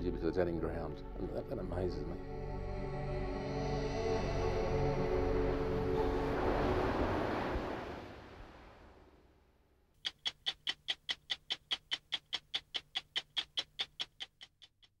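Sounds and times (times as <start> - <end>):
rushing background sound: 2.7 - 9.3
stopwatch ticking: 10.0 - 15.0.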